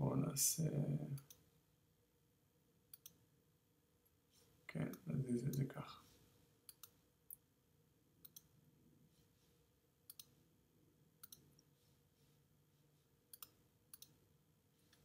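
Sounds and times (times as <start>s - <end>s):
computer mouse clicks: 2.9s - 3.2s, 6.7s - 7.4s, 8.2s - 8.5s, 10.1s - 10.4s, 11.2s - 11.7s, 13.3s - 14.2s.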